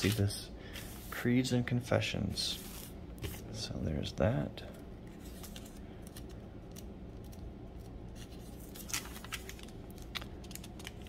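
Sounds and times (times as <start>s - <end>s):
pages turning: 0.0s - 1.2s, 5.1s - 11.0s
faint low hum: 0.0s - 11.0s.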